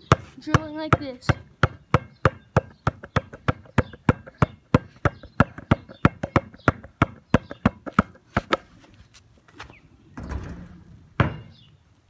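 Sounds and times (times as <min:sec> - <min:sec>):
basketball dribbling: 0:00.1 - 0:08.6.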